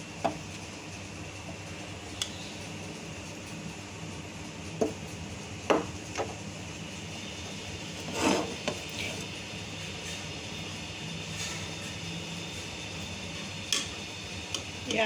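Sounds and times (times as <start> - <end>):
short knocks and rubs: 8.1 - 8.8.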